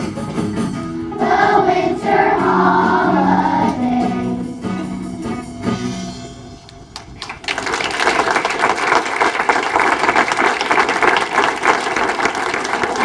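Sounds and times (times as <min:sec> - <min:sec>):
audience applause: 0:07.0 - 0:13.0.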